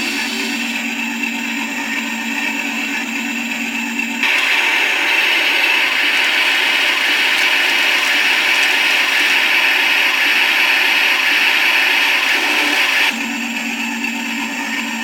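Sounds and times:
hissing grinding metal effect: 0.0s - 1.9s, 4.2s - 13.1s.

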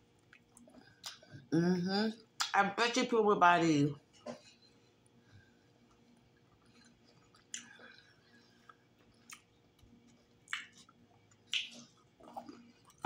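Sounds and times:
close-up chewing of fried food: 0.0s - 1.4s, 4.8s - 13.0s.

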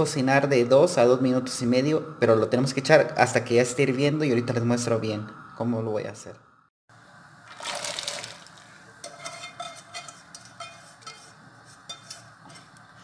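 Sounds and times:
vegetables splashing into boiling water: 7.4s - 8.9s
light clicks and scrapes in pan: 8.9s - 13.0s.

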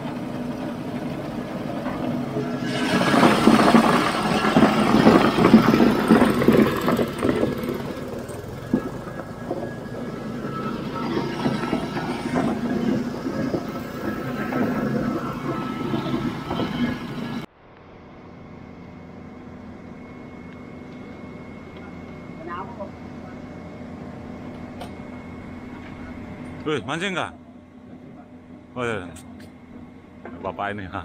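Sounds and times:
ice crusher grinding ice: 0.0s - 17.5s
small petrol engine: 0.0s - 30.5s.

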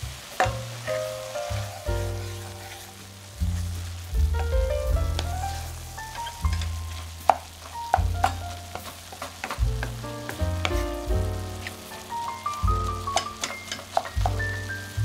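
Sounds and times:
background music with bass: 0.0s - 15.0s
meat sizzling in a pan: 0.0s - 15.0s
spatula clicking against pan: 13.1s - 14.3s.

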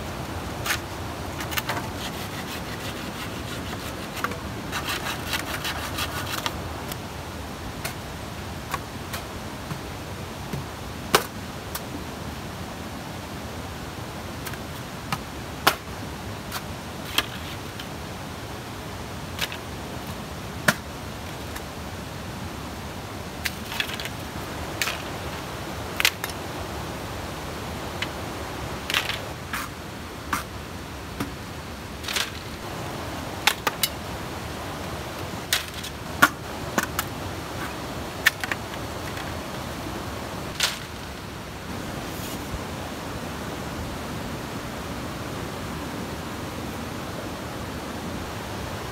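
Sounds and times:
stream water hissing: 0.0s - 48.9s
bamboo poles knocking and cracking: 10.5s - 11.9s, 14.4s - 15.9s, 16.5s - 17.9s, 19.4s - 20.9s, 23.4s - 25.4s, 26.0s - 26.4s, 28.9s - 30.5s, 32.0s - 32.6s, 33.4s - 34.0s, 35.4s - 39.3s, 40.5s - 41.1s.

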